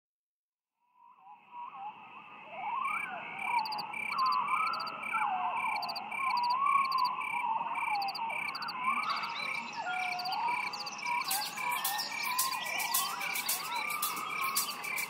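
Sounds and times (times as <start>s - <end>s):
short repeating chirps: 10.1s - 15.0s.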